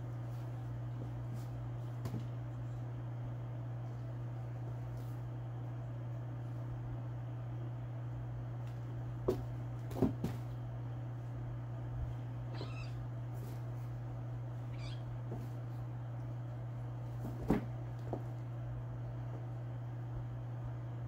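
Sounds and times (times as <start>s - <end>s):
steady low hum: 0.0s - 21.0s
kitten mewing: 12.5s - 13.0s, 14.7s - 15.1s.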